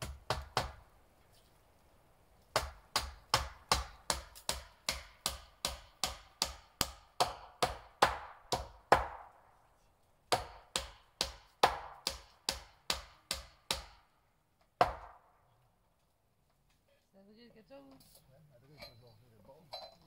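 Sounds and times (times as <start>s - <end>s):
hammer striking nails into wood: 0.0s - 0.9s, 2.5s - 9.4s, 10.3s - 15.4s.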